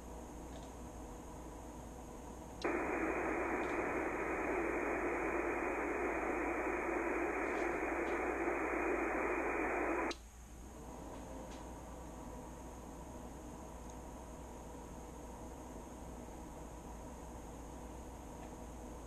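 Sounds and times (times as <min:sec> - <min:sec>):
radio static hiss: 0:02.6 - 0:10.2.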